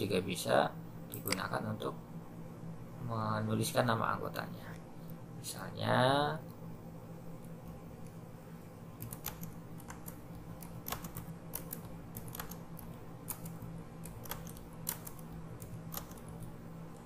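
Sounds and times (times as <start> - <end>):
keyboard keys clicking: 9.0 - 16.5.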